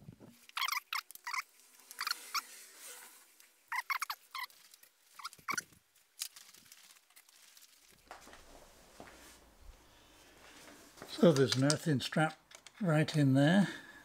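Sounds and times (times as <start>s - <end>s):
hex key clicking and squeaking: 0.5s - 2.4s, 3.7s - 4.5s, 5.2s - 5.6s.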